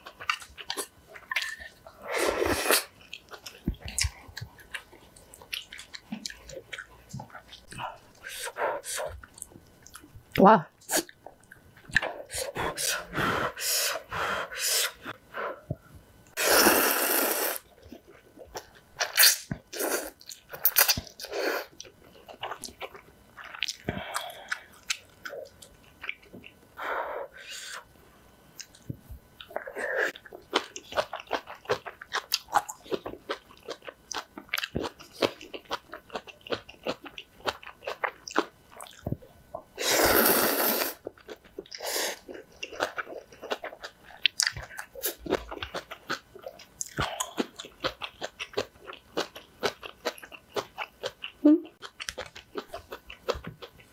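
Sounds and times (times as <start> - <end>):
chewing: 2.8 - 8.0, 41.0 - 53.9.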